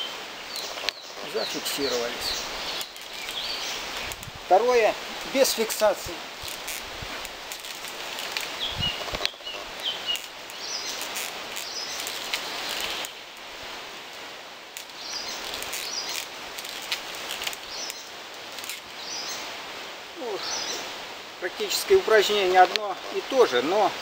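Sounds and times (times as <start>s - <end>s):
leaves rustling in wind: 0.0s - 24.0s
small songbirds chirping: 0.0s - 24.0s
faint clicks: 6.4s - 13.2s, 22.6s - 23.2s.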